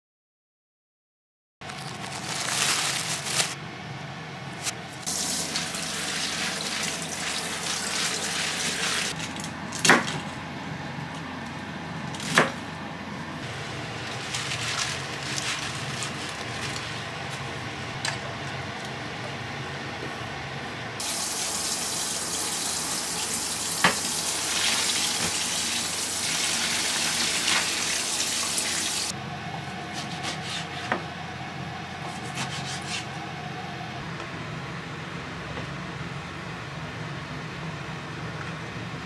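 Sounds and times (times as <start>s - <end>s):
plastic bags crinkling: 1.6s - 3.6s, 13.5s - 17.1s
running water: 5.1s - 9.2s, 21.0s - 29.1s
knife cutting on cutting board: 30.0s - 31.0s, 32.0s - 33.1s.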